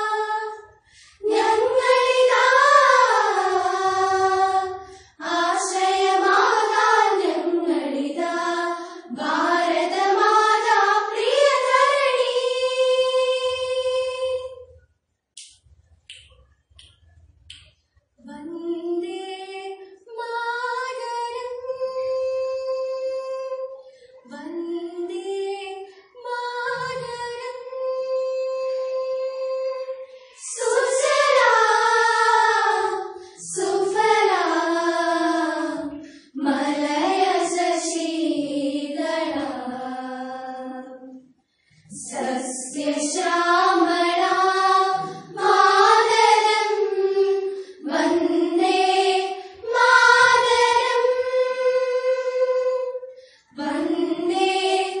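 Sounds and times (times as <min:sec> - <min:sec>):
girls singing together: 0:00.0 - 0:14.8, 0:18.2 - 0:55.0.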